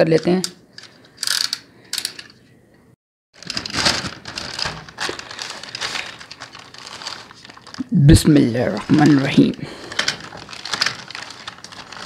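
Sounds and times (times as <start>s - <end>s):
plastic mailer bag crinkling: 3.4s - 12.0s.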